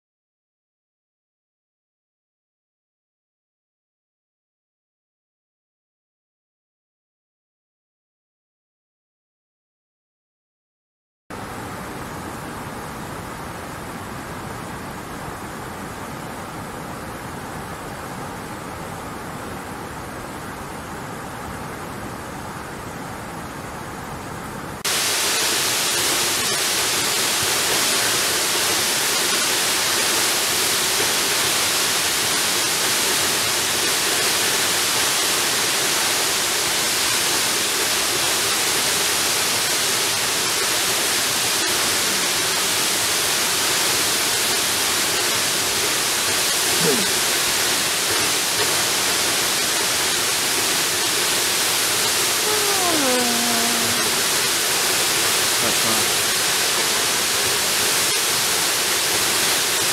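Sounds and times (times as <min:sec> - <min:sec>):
waterfall rushing: 0:24.8 - 0:59.9.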